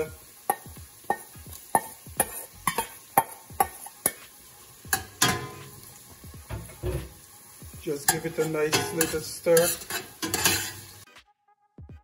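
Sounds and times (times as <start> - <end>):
onions sizzling in oil: 0.0 - 11.1
metal spoon clinking on pot: 0.5 - 4.2, 4.9 - 5.7, 8.1 - 10.9.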